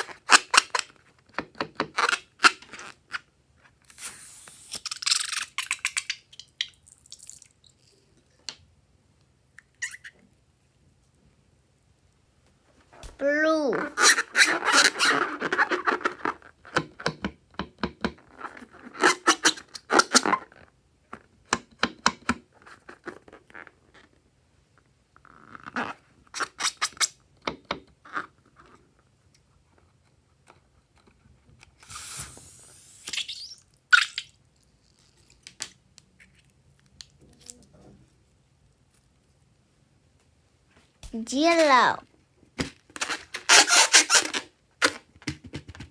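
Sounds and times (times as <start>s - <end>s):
short rushing hiss: 3.9s - 4.8s, 31.8s - 33.2s
balloon squeaking under fingers: 3.9s - 6.3s, 9.8s - 10.2s, 13.7s - 16.6s, 18.3s - 20.7s, 25.2s - 27.2s, 31.8s - 35.2s, 43.0s - 45.1s.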